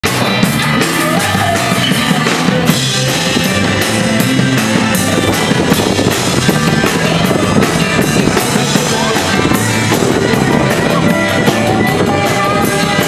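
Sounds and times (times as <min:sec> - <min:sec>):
guitar: 0:00.0 - 0:13.0
loud rock music: 0:00.0 - 0:13.0
steady drum beat: 0:00.0 - 0:13.0.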